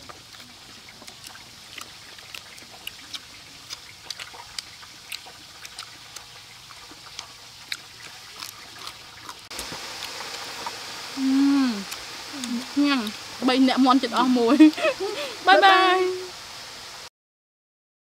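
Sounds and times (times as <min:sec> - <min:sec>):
chewing and tearing fried chicken: 0:00.0 - 0:10.8
faint steady hiss: 0:00.0 - 0:17.1.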